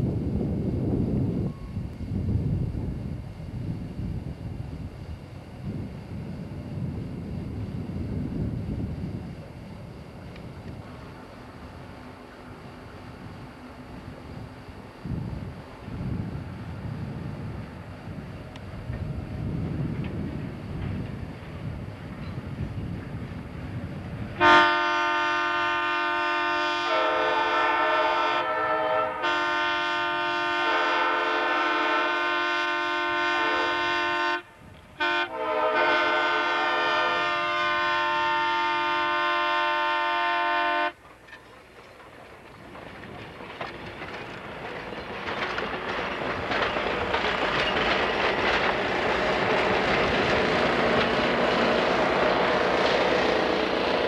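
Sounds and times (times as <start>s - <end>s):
diesel locomotive engine passing: 0.0s - 54.0s
train wheels clicking over rail joints: 17.4s - 23.8s, 41.0s - 54.0s
locomotive air horn blasts: 24.4s - 41.0s.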